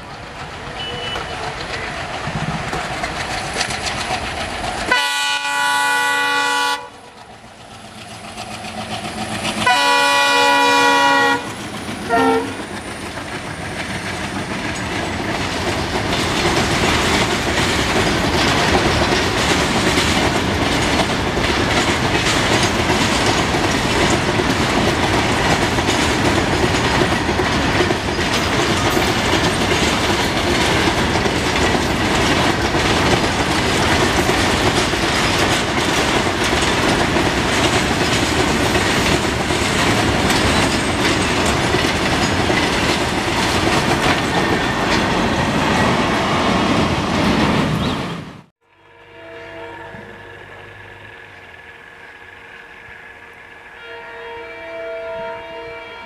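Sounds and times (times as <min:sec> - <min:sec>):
train wheels clacking over rail joints: 0:00.0 - 0:48.5
locomotive horn blasts: 0:04.9 - 0:07.0, 0:09.6 - 0:12.6, 0:48.6 - 0:51.0, 0:53.6 - 0:56.0.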